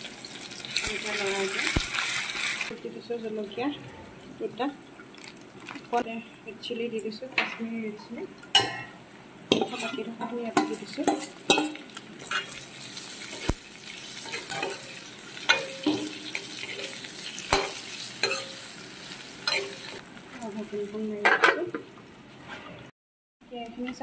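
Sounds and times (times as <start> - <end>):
meat and onions sizzling in oil: 0.0 - 3.6, 8.5 - 21.3
metal spatula scraping a pan: 9.5 - 18.7.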